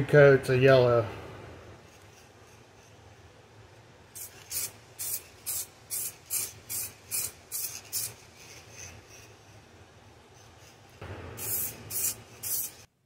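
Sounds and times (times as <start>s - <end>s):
aerosol spray can hissing: 4.2s - 9.5s, 10.4s - 12.9s.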